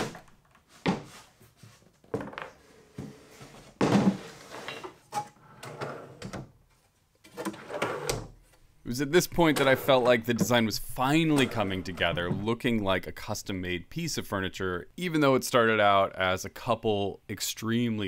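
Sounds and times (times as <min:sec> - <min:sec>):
wooden drawers sliding: 0:07.3 - 0:08.4.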